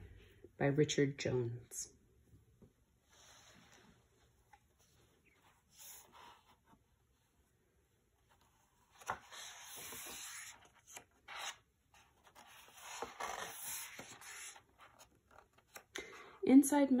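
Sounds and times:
book pages rustling: 3.1s - 7.1s, 8.2s - 16.0s.

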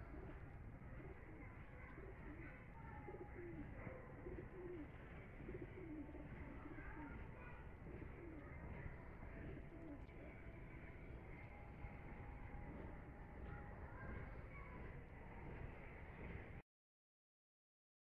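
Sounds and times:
pigeons cooing: 0.0s - 10.1s.

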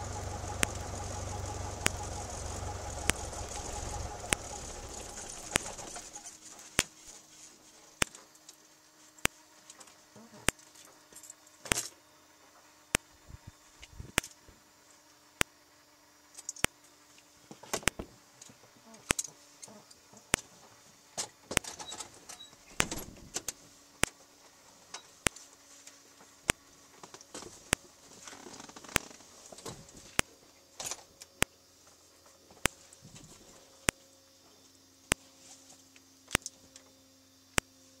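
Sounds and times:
sharp clicks: 0.0s - 6.3s.

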